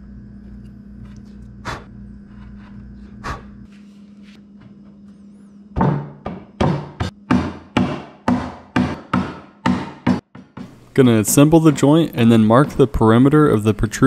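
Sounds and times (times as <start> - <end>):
low hum: 0.0 - 7.3
wooden knock: 5.8 - 10.8
chisel paring wood: 5.9 - 13.7.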